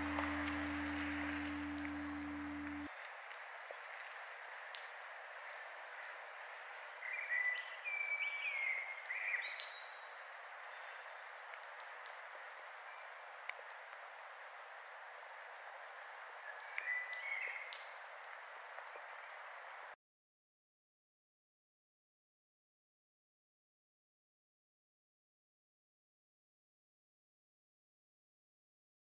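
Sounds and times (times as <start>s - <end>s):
campfire crackling: 0.0s - 7.2s.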